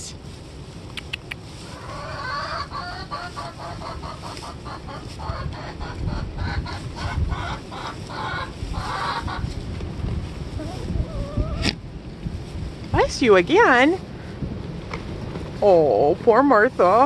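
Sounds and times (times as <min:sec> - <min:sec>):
chicken clucking: 0:01.7 - 0:09.5, 0:10.6 - 0:11.8.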